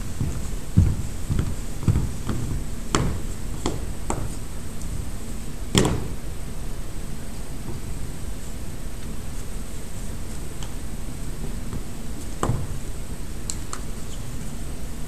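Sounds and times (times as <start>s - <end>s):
boots marching on wooden floor: 0.0s - 5.1s, 11.4s - 13.0s
heel strikes: 0.2s - 4.4s, 5.7s - 6.2s
loud boot stamp: 0.2s - 4.4s, 5.7s - 6.2s, 11.8s - 12.8s.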